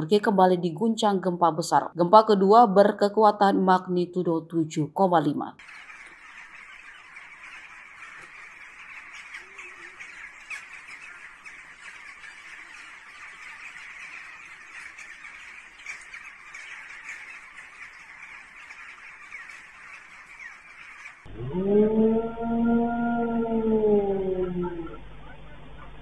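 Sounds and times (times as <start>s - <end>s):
flock of birds chattering: 5.6s - 21.3s, 24.3s - 26.0s.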